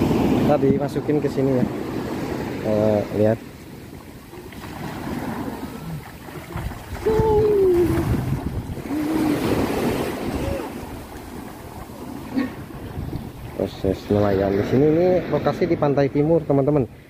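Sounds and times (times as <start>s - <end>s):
wind buffeting microphone: 0.0s - 15.8s
waves washing up a beach: 0.0s - 17.0s
person calling out: 7.0s - 8.2s, 8.8s - 10.8s.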